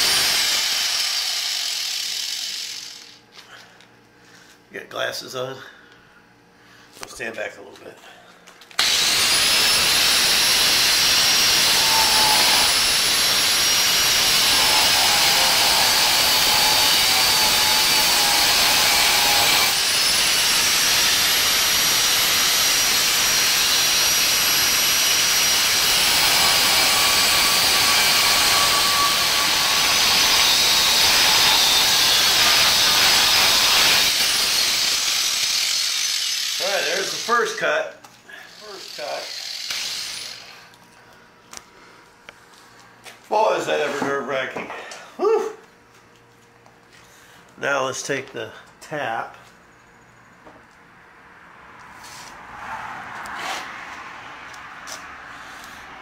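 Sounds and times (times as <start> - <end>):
angle grinder cutting metal: 0.0 - 3.2, 8.8 - 37.6, 38.5 - 40.7.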